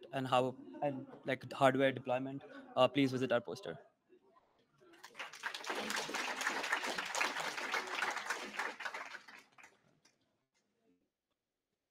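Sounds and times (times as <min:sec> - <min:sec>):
audience applauding: 0:05.0 - 0:09.8.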